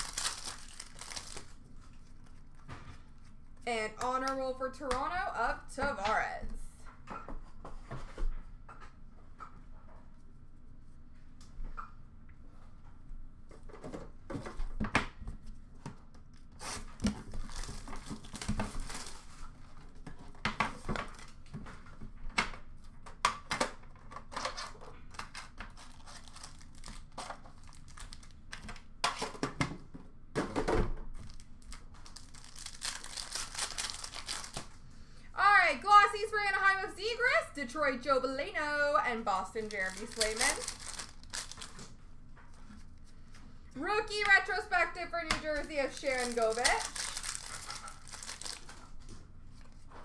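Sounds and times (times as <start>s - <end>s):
foil wrappers tearing and crinkling: 0.0s - 2.4s, 16.5s - 19.4s, 24.4s - 28.4s, 31.2s - 34.8s, 39.3s - 42.0s, 45.5s - 49.0s.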